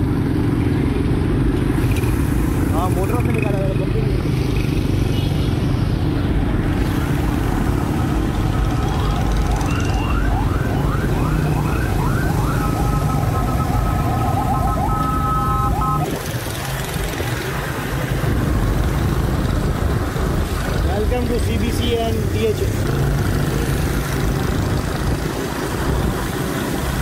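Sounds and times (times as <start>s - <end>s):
electronic siren alarm: 8.8s - 16.1s.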